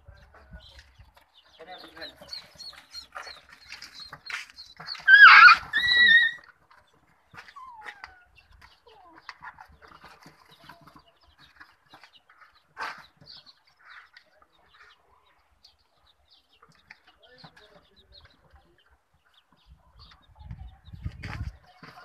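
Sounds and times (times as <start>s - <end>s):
chicks peeping: 0.0s - 22.0s
loud animal cry: 5.0s - 6.5s.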